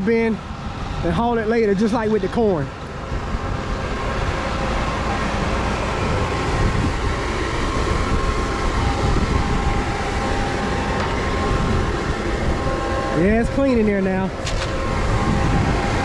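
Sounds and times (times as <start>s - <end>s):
grain auger humming: 0.0s - 16.0s.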